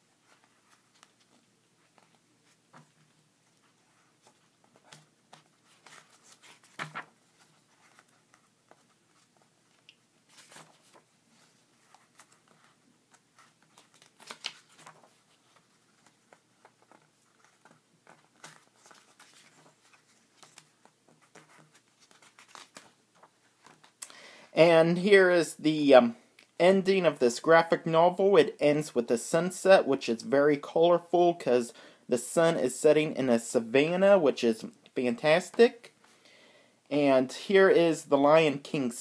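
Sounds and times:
paper pages rustling: 0:00.1 - 0:24.0
page flips: 0:00.3 - 0:24.0.

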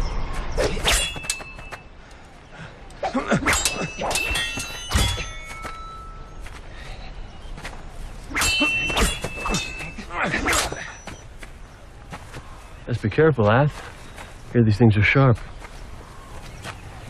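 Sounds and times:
blades clashing: 0:00.6 - 0:01.9, 0:03.1 - 0:06.4, 0:08.2 - 0:11.2.

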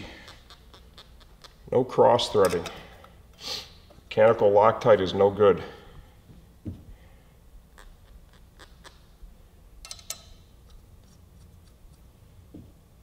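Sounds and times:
metal bolts clicking: 0:02.2 - 0:02.9, 0:09.8 - 0:10.5.

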